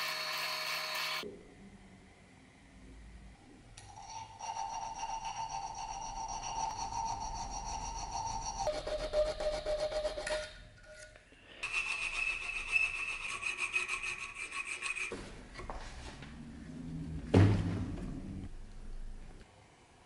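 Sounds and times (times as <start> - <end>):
hand files rasping on metal: 4.0 - 10.2, 11.6 - 15.2.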